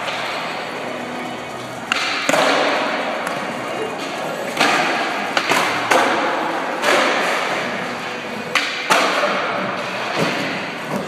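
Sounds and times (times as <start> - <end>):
skateboard wheels rolling: 0.0 - 11.0
skateboard pops and clacks: 1.8 - 3.4, 4.6 - 7.6, 8.5 - 9.5.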